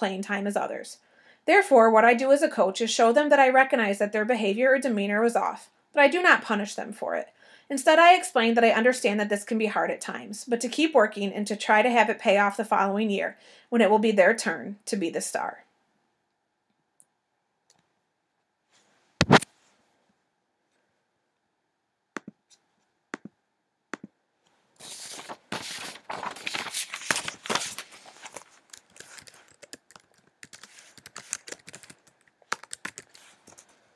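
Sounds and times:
sharp click: 19.2s - 19.5s
laptop keyboard typing: 28.2s - 33.6s.

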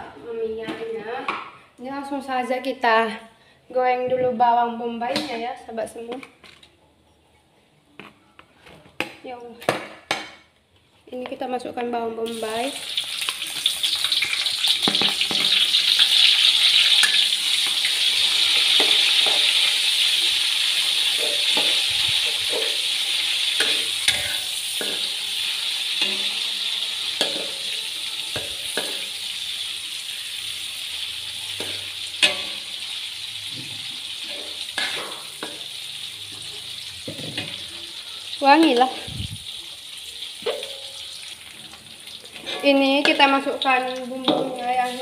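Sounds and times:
onions sizzling in oil: 12.2s - 45.0s
metal spatula scraping wok: 13.2s - 39.1s, 40.2s - 45.0s.

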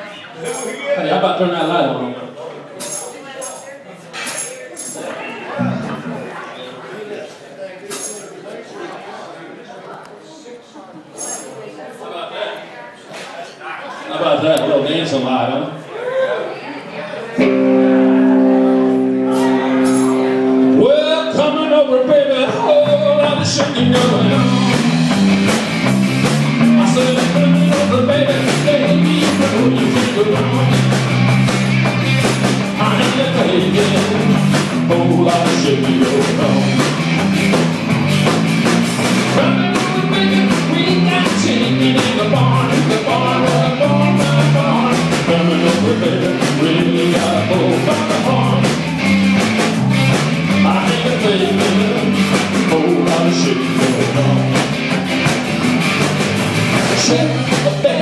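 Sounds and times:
guitar: 0.0s - 2.2s, 2.8s - 6.6s, 17.2s - 58.0s
drum kit beat: 17.4s - 21.0s, 22.6s - 58.0s
person singing lead vocal: 17.8s - 25.4s, 26.5s - 31.1s, 32.6s - 37.0s, 39.3s - 55.3s, 56.8s - 58.0s.

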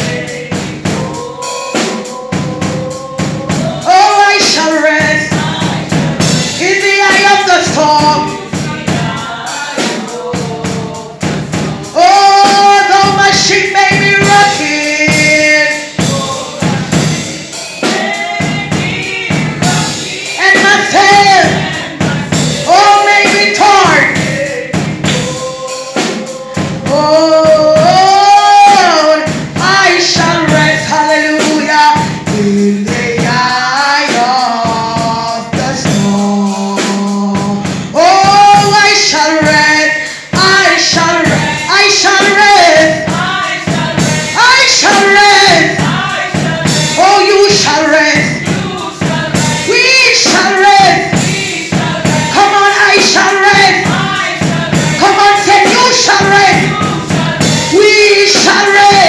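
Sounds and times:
voices singing along: 0.0s - 59.0s
woman singing into microphone: 0.0s - 59.0s.

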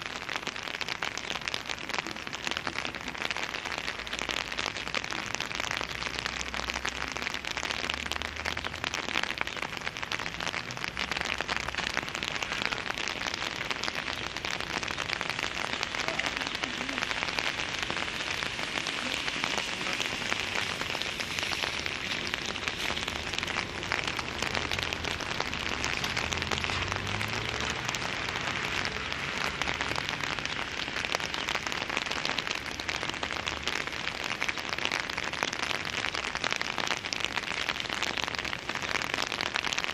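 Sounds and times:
rain pattering: 0.0s - 39.9s
low hum of vehicles: 22.8s - 30.7s.

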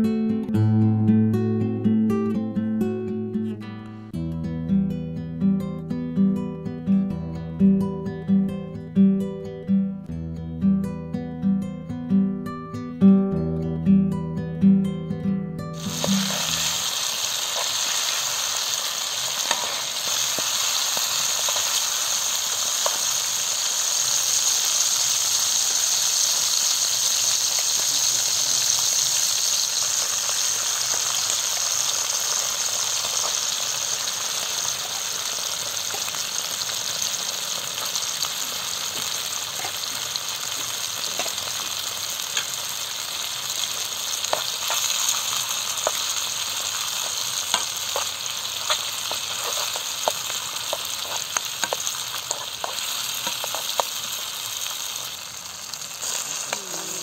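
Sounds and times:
food sizzling in frying pan: 15.8s - 57.0s.

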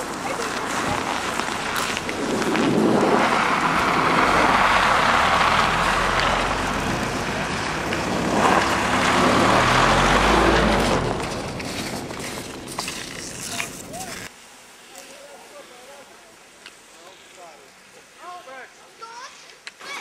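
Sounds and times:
car passing on snowy road: 0.0s - 14.3s.

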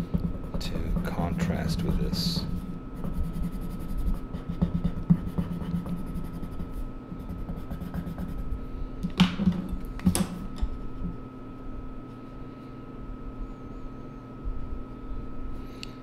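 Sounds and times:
pencil scribbling on paper: 0.0s - 8.5s.

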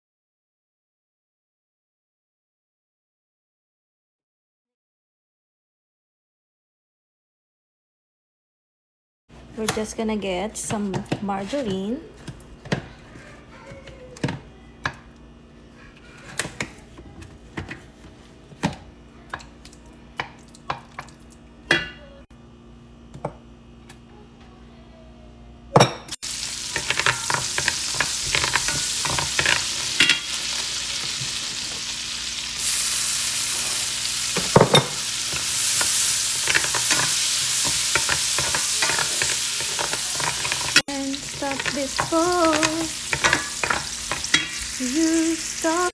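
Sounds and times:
garlic sizzling in a pot: 26.2s - 45.9s
wooden spoon scraping a pot: 34.8s - 44.7s.

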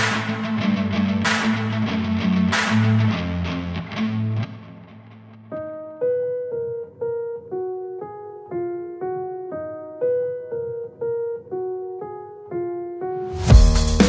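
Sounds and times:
keyboard melody: 3.4s - 14.0s
drums and heavy bass beat: 13.5s - 14.0s.

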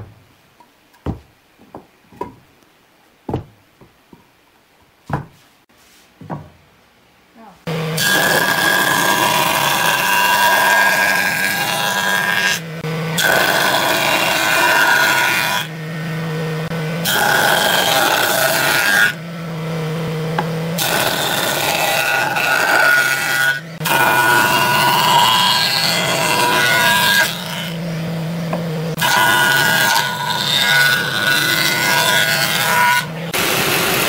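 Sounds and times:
machine humming: 7.6s - 34.0s
jointer cutting wood: 7.7s - 34.0s.

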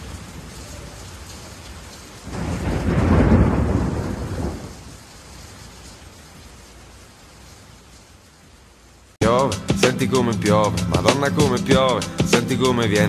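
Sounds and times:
thunder rumble: 0.0s - 5.2s
steady rain: 0.0s - 13.0s.

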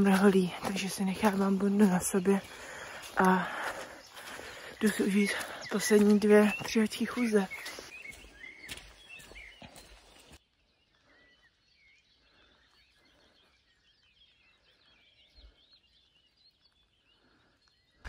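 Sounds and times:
footsteps on grassy path: 0.0s - 10.4s
birds chirping: 0.0s - 18.0s.

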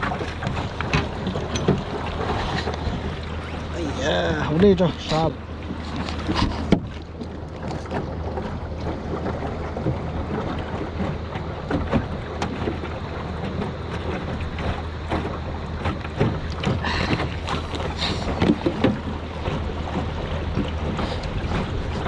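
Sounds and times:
moving water: 0.0s - 22.0s.

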